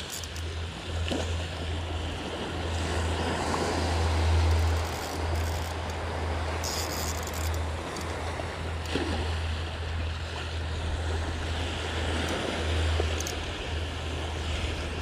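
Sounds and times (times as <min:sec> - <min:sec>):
small waves washing on sand: 0:00.0 - 0:15.0.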